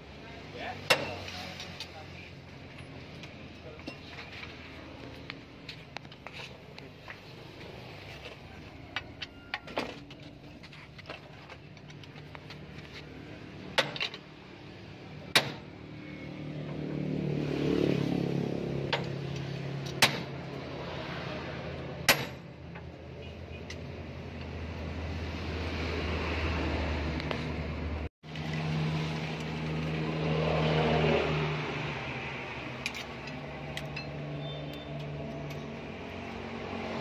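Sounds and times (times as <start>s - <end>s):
hand tools clinking on metal: 2.7s - 4.6s, 32.8s - 35.8s.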